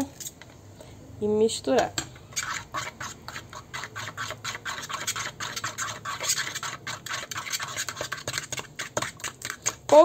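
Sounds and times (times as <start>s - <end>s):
utensil scraping around a bowl: 2.2s - 10.0s.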